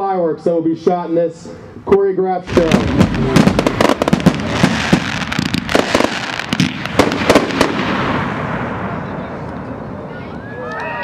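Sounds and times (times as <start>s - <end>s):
fireworks bangs and crackling: 2.5s - 10.2s.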